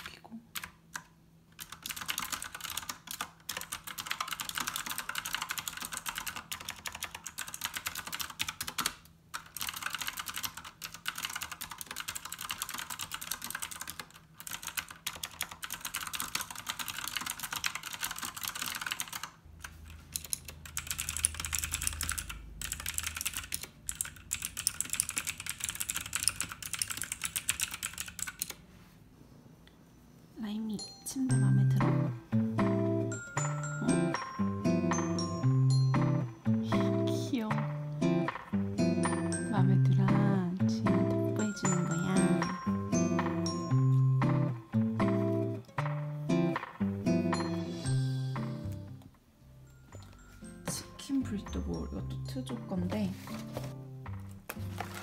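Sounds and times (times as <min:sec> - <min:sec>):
fast mechanical keyboard typing: 0:00.0 - 0:28.6, 0:54.8 - 0:55.0.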